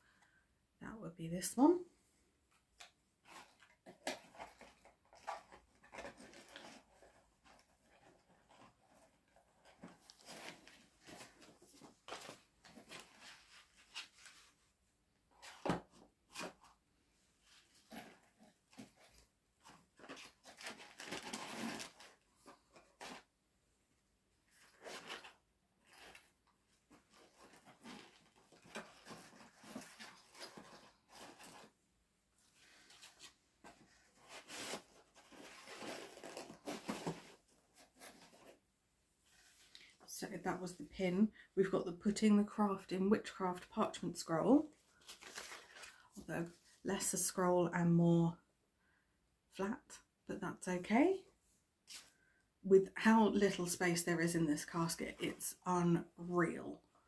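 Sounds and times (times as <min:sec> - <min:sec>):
packaging rustling: 0:17.6 - 0:23.2, 0:26.9 - 0:31.8, 0:32.5 - 0:38.6, 0:44.9 - 0:46.1.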